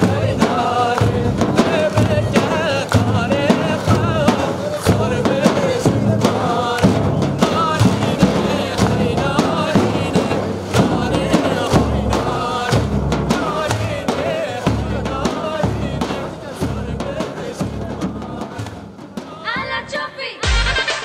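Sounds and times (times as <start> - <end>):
steady drum beat: 0.0 - 21.0.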